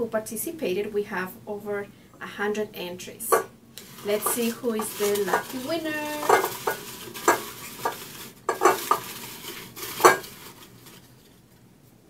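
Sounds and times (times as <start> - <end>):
paper tickets rustling: 3.8 - 11.3.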